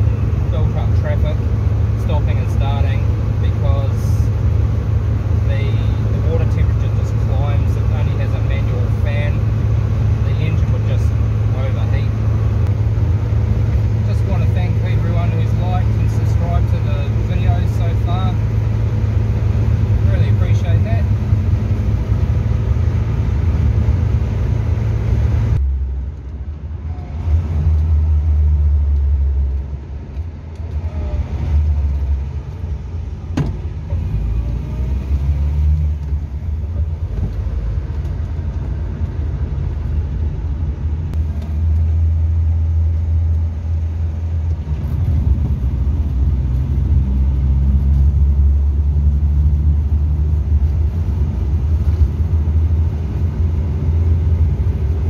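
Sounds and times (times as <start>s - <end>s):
car engine low rumble: 0.0s - 55.0s
wind noise: 44.5s - 48.3s.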